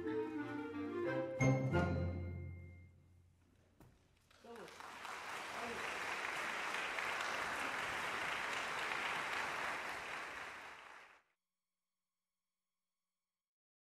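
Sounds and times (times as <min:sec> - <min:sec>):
audience applauding: 0:04.2 - 0:11.2.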